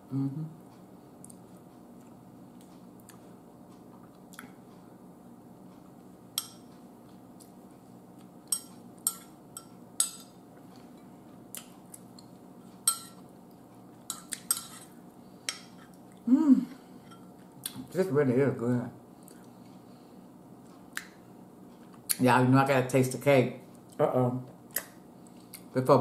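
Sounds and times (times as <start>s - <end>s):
faint steady hum: 0.0s - 26.0s
metal spoon clinking on ceramic bowl: 8.5s - 10.3s, 12.9s - 13.2s.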